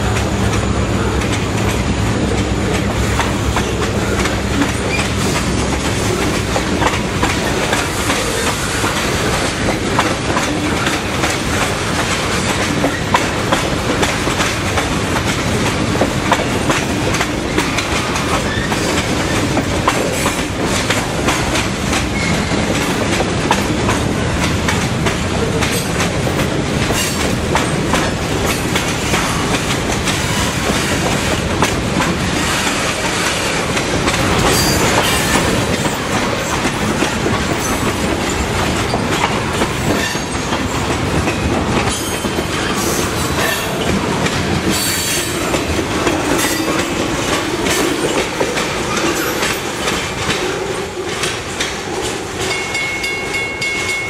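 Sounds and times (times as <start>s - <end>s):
wheel squealing on rail: 0.0s - 13.4s, 17.4s - 23.7s, 26.9s - 31.4s, 32.4s - 44.1s, 44.7s - 54.0s
freight train wheels clacking: 0.0s - 54.0s.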